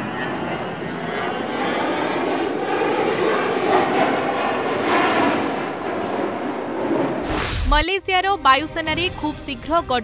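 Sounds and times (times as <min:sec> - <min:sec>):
jet engine rushing: 0:00.0 - 0:08.0.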